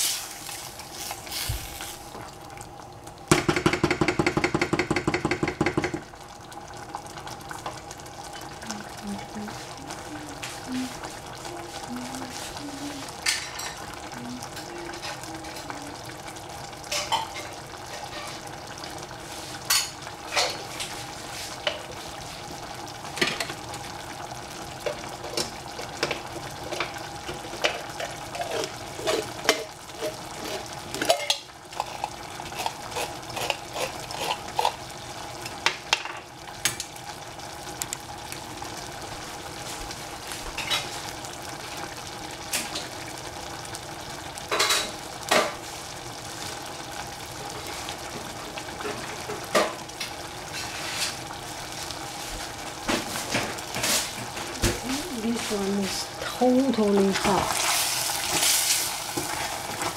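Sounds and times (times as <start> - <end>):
food sizzling in a pan: 0.0 - 59.9
utensil scraping a pan: 27.6 - 34.8.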